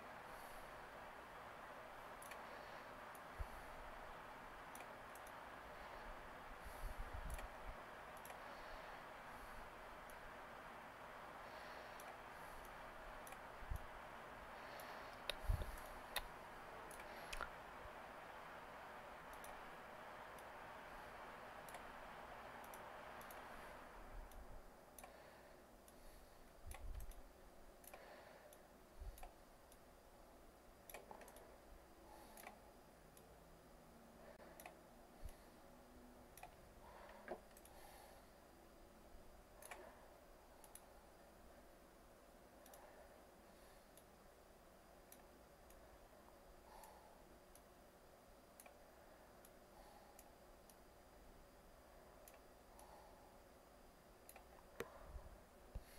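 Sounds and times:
steady hiss: 0.0 - 55.9
computer mouse clicks: 2.0 - 3.3, 4.6 - 5.5, 6.7 - 8.8, 14.6 - 17.6, 19.2 - 20.6, 21.2 - 24.4, 25.9 - 29.8, 30.8 - 33.3, 40.6 - 41.0, 42.6 - 44.2.

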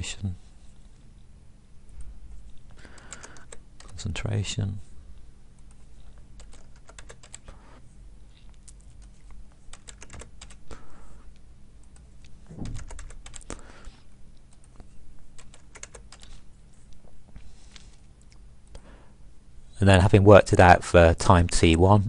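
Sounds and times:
computer keyboard typing: 2.8 - 4.0, 6.4 - 7.6, 8.8 - 10.7, 11.9 - 13.6, 14.5 - 14.8, 15.4 - 16.4.

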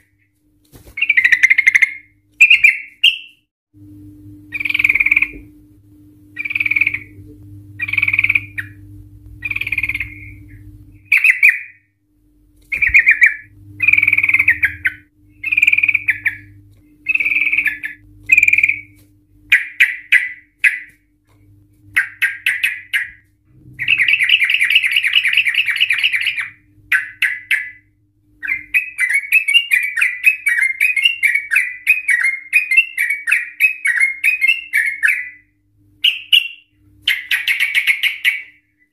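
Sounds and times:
faint low hum: 0.0 - 38.9
bulbul singing: 1.0 - 3.4, 4.4 - 5.5, 6.3 - 11.9, 12.7 - 21.0, 21.9 - 38.6.

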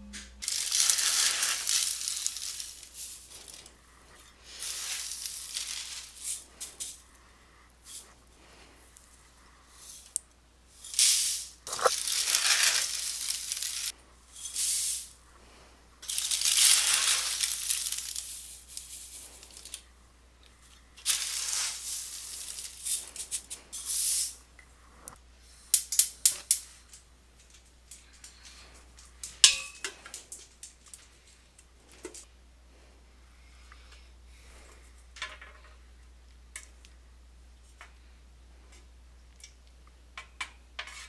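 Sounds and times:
dry cereal being poured: 0.4 - 3.8, 4.4 - 7.0, 10.8 - 15.2, 16.0 - 19.8, 21.0 - 24.4.

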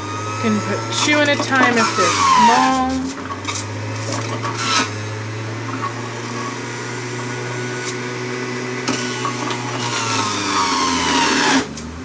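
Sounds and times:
electric juicer humming: 0.0 - 12.0.

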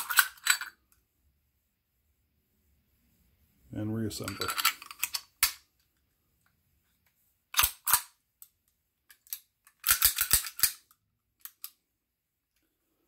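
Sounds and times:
pistol parts clicking: 0.0 - 0.8, 4.2 - 5.7, 7.5 - 8.5, 9.1 - 11.8
pistol slide metal clacks: 7.5 - 8.1, 9.2 - 11.8.

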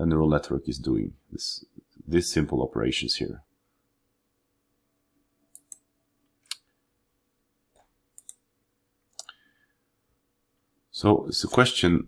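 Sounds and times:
computer mouse clicking: 5.5 - 6.7, 7.8 - 8.4.

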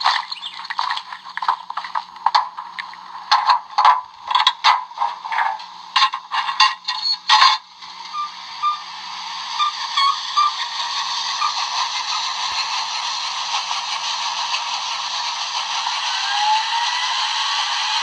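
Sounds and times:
steady steam hiss: 7.7 - 18.0
steam bursts: 7.8 - 18.0.

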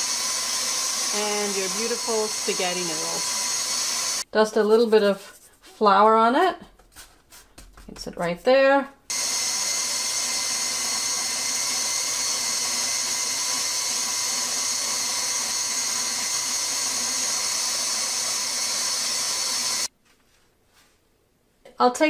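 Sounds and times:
stand mixer motor whining: 0.0 - 4.2, 9.1 - 19.9.

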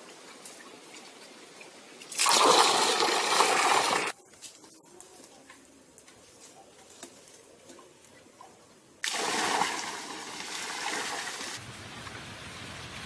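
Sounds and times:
gushing splashing water: 2.1 - 4.1, 9.0 - 11.6.

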